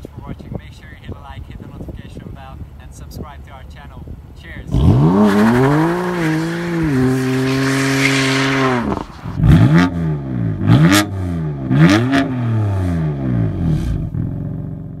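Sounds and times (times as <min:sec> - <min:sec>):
car engine revving: 0:04.5 - 0:15.0.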